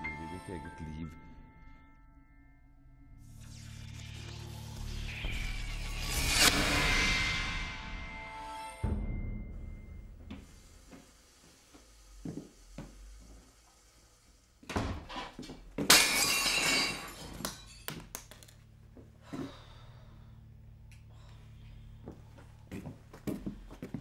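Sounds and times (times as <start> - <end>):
loud crash: 5.6 - 10.2.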